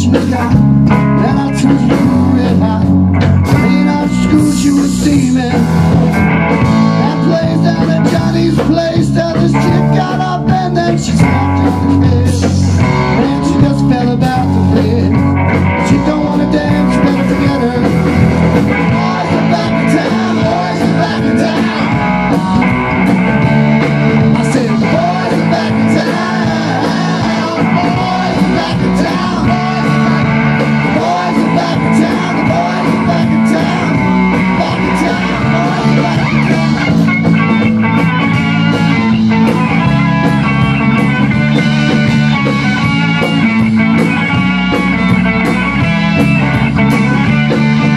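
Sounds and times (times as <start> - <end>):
man singing: 0.0 - 37.6
drum kit: 0.0 - 47.9
electric bass: 0.0 - 47.9
electric guitar: 0.0 - 47.9.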